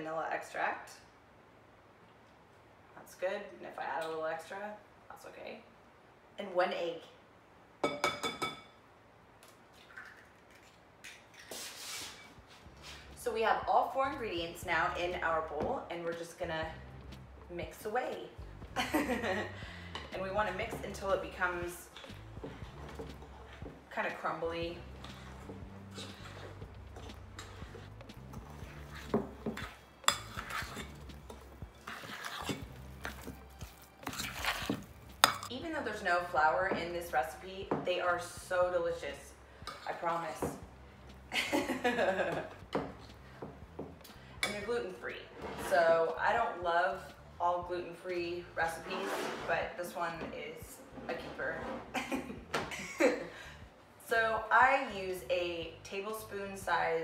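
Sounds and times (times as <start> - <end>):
utensil scraping glass bowl: 20.4 - 23.8, 24.7 - 35.5, 48.6 - 49.7.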